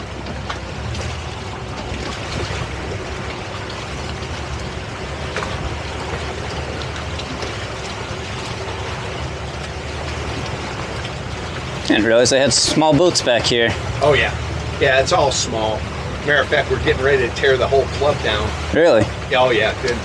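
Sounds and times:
boat engine running: 0.0s - 20.0s
water rushing: 0.0s - 20.0s.

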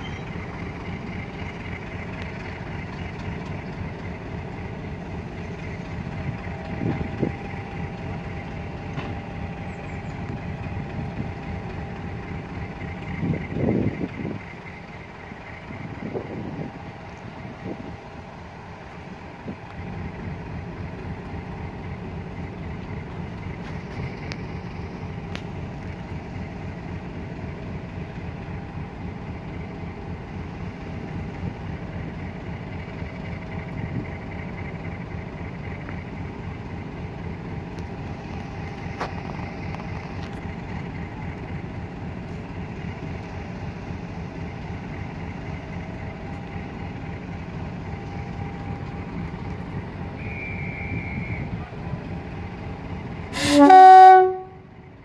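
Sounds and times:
locomotive diesel engine throbbing: 0.0s - 55.0s.

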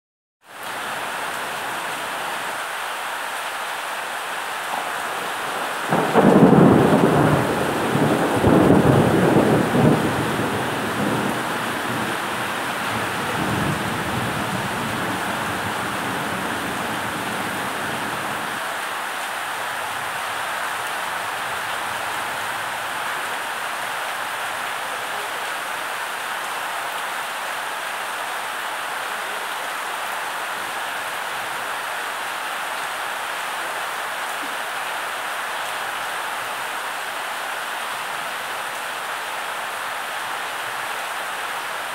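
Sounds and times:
heavy rain on a roof: 0.4s - 41.9s
low rumble of thunder: 5.2s - 17.4s.

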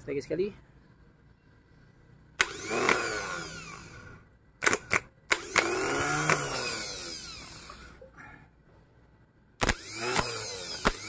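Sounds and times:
starter motor whirring: 2.4s - 8.0s, 9.6s - 11.0s.

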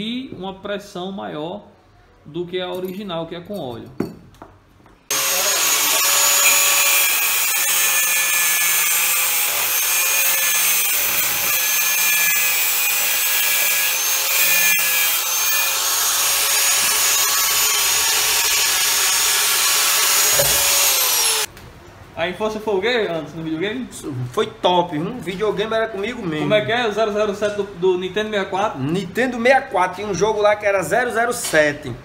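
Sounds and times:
angle grinder cutting metal: 5.1s - 21.5s.

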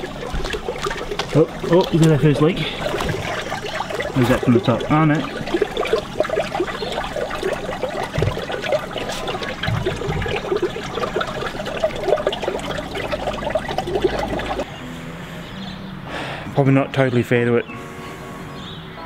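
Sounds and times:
water trickling onto concrete: 0.0s - 14.7s.

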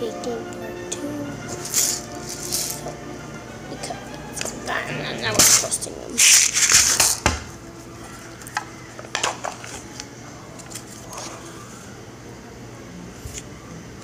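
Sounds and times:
shaking noise: 1.5s - 2.8s.

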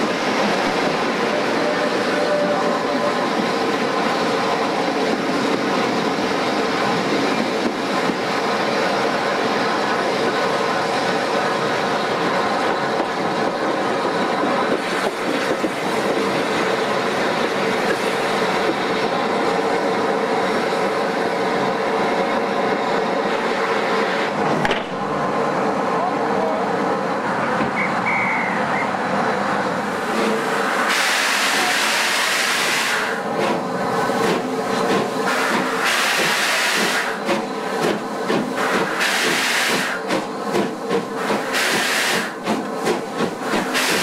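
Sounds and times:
train running and rail noise: 0.0s - 44.0s
steam hissing: 29.9s - 44.0s.

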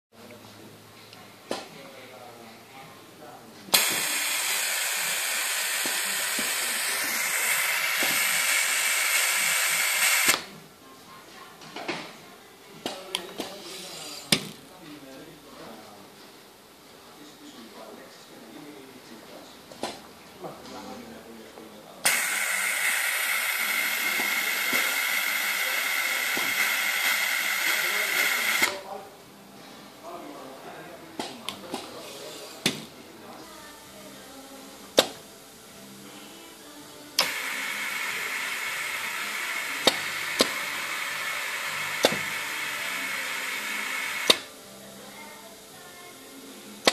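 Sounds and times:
vacuum generator hissing: 3.7s - 10.5s, 22.0s - 28.9s, 35.8s - 46.9s.

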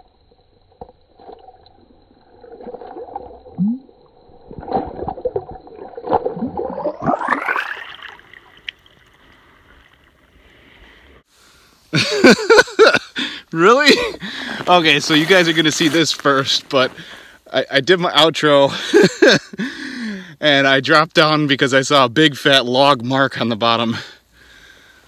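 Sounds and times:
water splashing and gurgling: 0.0s - 10.9s
man talking: 13.5s - 18.8s, 20.4s - 24.2s
man's wordless voice: 13.5s - 18.8s, 20.4s - 24.2s.

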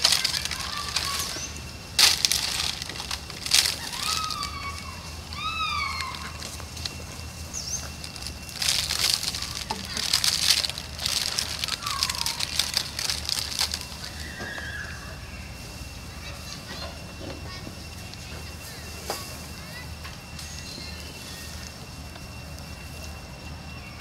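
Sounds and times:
rustling and scraping: 0.0s - 5.3s, 5.9s - 14.4s
monkeys squeaky calls: 0.0s - 15.3s.

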